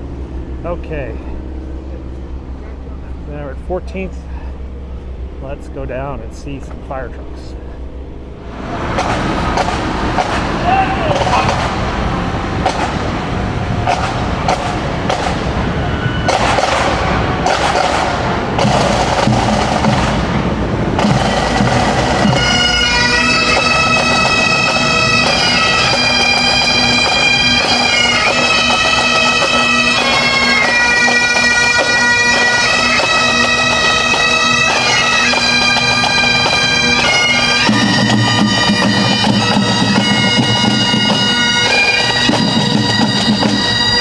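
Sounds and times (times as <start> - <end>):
bagpipes playing: 0.0 - 44.0
marching drums: 8.6 - 44.0.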